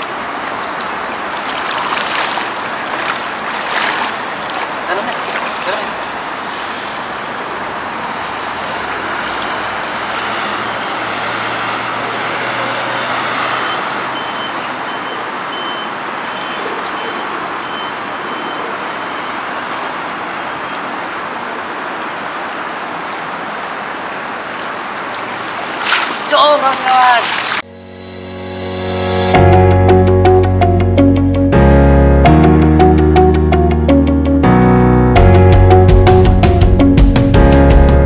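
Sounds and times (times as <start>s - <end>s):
road traffic hum: 0.0s - 31.8s
heavy vehicle droning: 5.9s - 16.3s
reversing alarm beeps: 13.6s - 19.5s.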